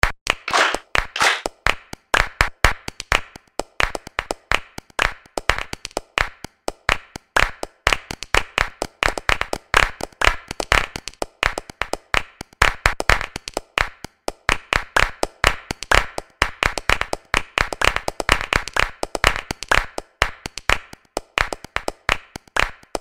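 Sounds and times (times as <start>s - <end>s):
fast rhythmic hand clapping: 0.0s - 23.0s.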